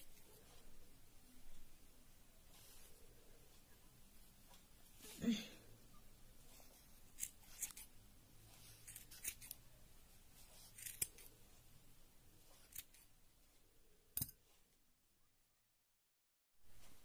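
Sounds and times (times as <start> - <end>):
scissors snipping yarn: 6.6 - 9.6, 10.3 - 11.3, 12.4 - 13.1.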